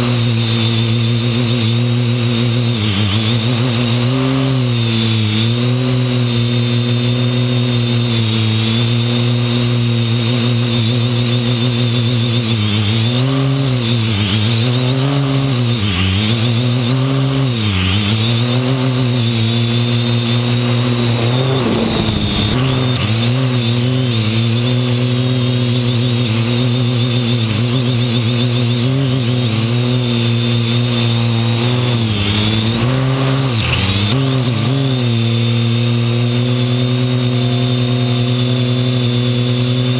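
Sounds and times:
drone propellers buzzing: 0.0 - 39.9
brief rush of noise: 20.1 - 23.8.

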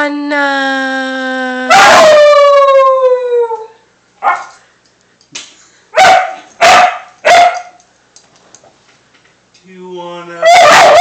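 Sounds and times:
puppy howling: 1.6 - 4.5, 10.4 - 11.0
puppy barking: 4.2 - 4.6, 6.0 - 7.8, 10.4 - 11.0.

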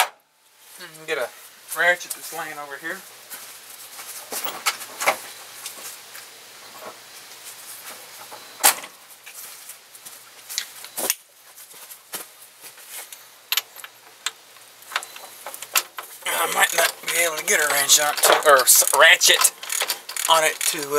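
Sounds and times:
metal tools clinking: 13.5 - 20.9.

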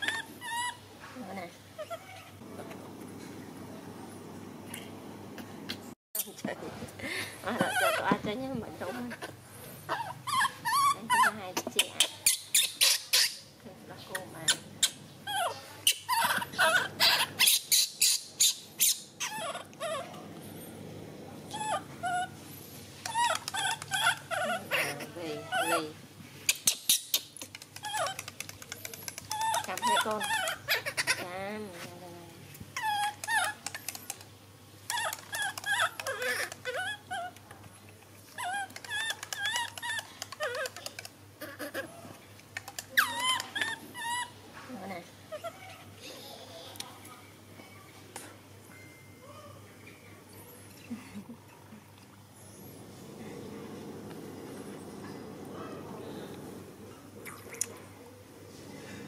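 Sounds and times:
baby monkey squealing: 0.0 - 0.8, 7.6 - 8.2, 9.9 - 13.5, 14.4 - 20.1, 21.5 - 22.4, 23.0 - 25.9, 26.5 - 28.3, 29.3 - 31.4, 32.8 - 33.9, 34.9 - 37.4, 38.4 - 41.9, 42.7 - 44.4.

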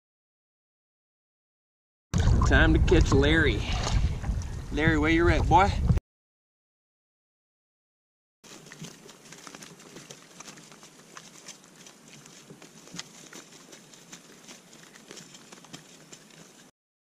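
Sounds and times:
fish thrashing and splashing: 8.5 - 16.7.

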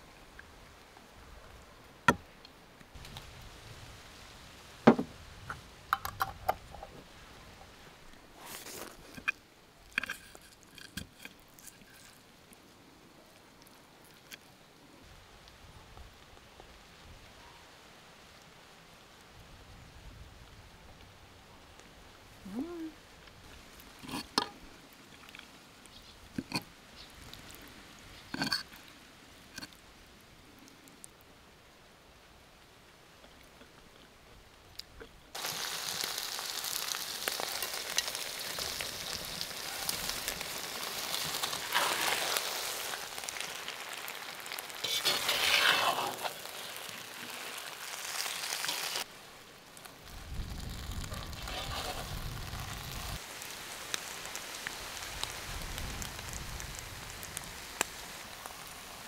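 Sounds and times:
hard objects knocking and clicking: 4.9 - 5.1.

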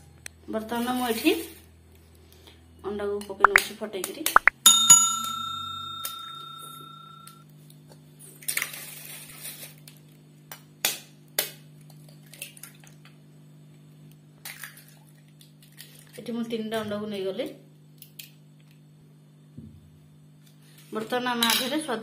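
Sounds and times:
faint steady hum: 0.0 - 8.6
steel bowl ringing: 4.4 - 7.4.

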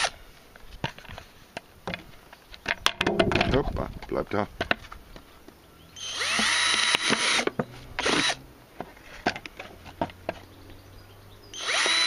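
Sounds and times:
cordless drill boring through plastic: 6.0 - 8.4, 11.6 - 12.0.

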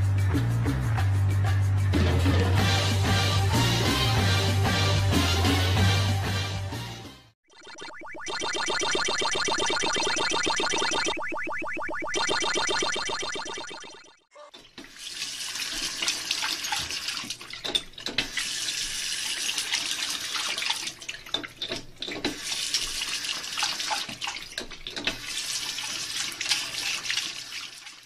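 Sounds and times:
water running from tap: 14.6 - 28.0.

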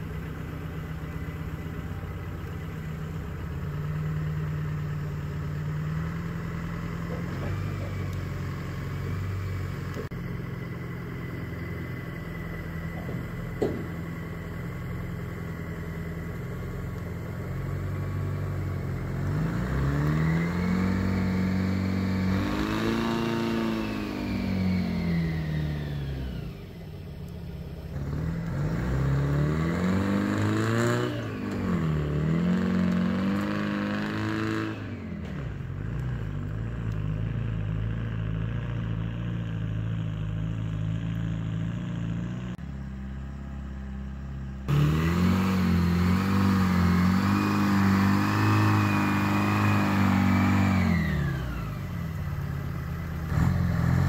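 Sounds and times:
diesel truck engine idling and revving: 0.0 - 54.0.

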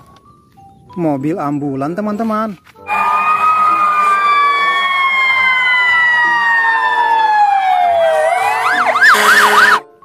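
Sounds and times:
ambulance siren wailing and yelping: 2.8 - 9.9.

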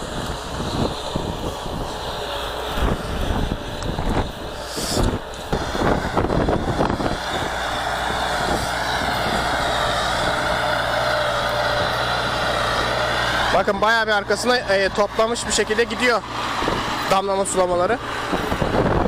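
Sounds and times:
wind noise on microphone: 0.0 - 14.1, 14.9 - 19.0
tractor diesel engine running: 0.0 - 19.0.

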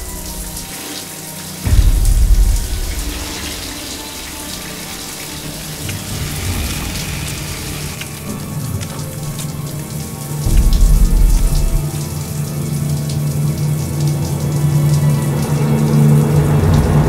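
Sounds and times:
water spraying from showerhead: 0.0 - 17.0
loud low rumble: 1.7 - 4.7, 10.4 - 12.0.

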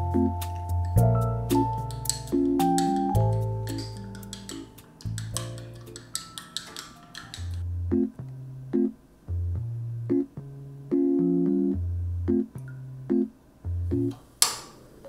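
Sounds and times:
low bass notes: 0.0 - 4.3, 7.6 - 14.2
electric piano chords: 0.0 - 9.0, 10.1 - 13.3
sharp click: 0.8 - 7.6.

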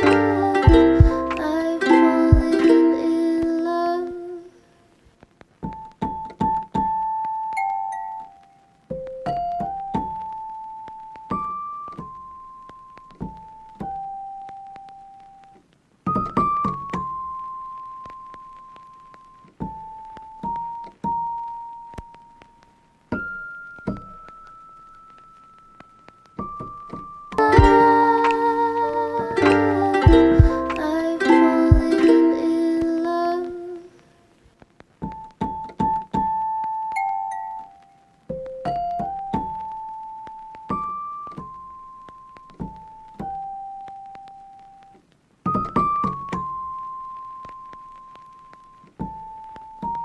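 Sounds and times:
held music chord: 0.0 - 3.0, 27.4 - 32.9
piano repeated notes: 0.0 - 3.2, 23.1 - 33.2
slow piano music: 0.0 - 3.4, 16.1 - 33.6, 35.1 - 50.0.

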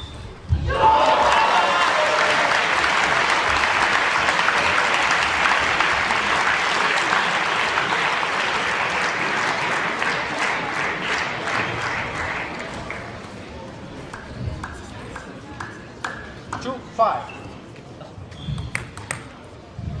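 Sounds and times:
crowd applauding: 0.7 - 13.5.

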